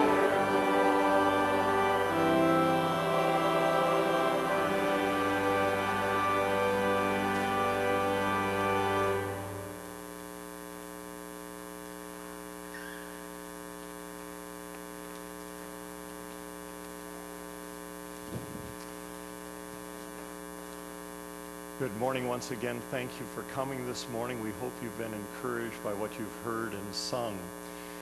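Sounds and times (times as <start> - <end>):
music: 0.0 - 10.0
electrical mains hum: 0.0 - 28.0.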